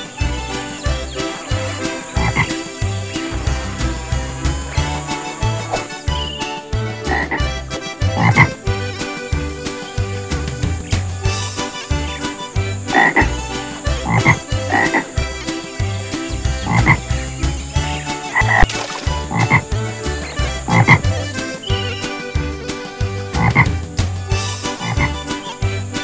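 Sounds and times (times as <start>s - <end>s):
backing track with low beat: 0.0s - 26.0s
cartoon frog croaks: 1.2s - 2.8s, 7.0s - 7.5s, 8.2s - 8.6s, 12.8s - 15.2s, 16.6s - 17.1s, 18.3s - 19.7s, 20.4s - 21.2s, 23.4s - 23.8s, 24.7s - 25.3s.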